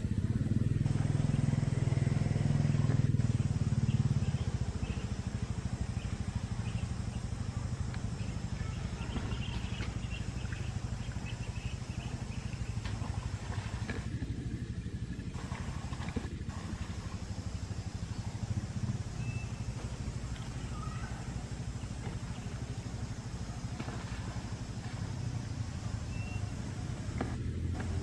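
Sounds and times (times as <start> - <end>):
engine droning: 0.0 - 28.0
faint high chirps: 16.7 - 27.0.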